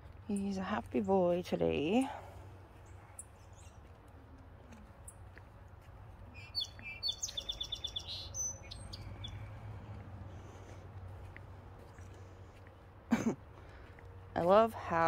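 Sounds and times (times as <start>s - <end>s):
bird chirping: 2.8s - 3.9s, 6.3s - 9.6s.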